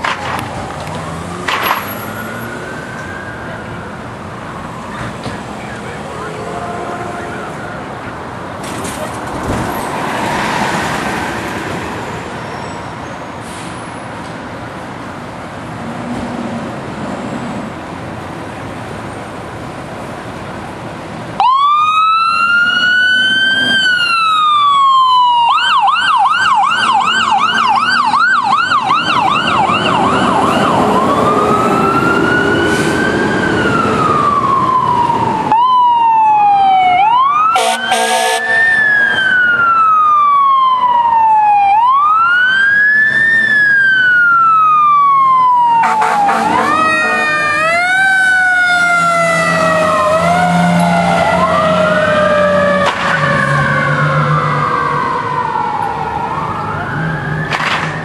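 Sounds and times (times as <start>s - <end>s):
fire siren wailing and yelping: 0.0s - 8.0s, 21.4s - 58.0s
street traffic noise: 0.0s - 58.0s.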